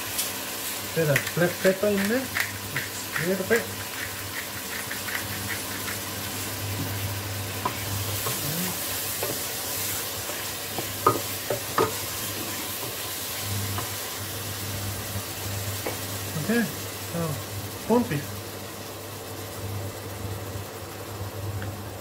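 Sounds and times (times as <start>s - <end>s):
food sizzling in a pot: 0.0s - 22.0s
spoon knocking against pot: 10.8s - 12.0s.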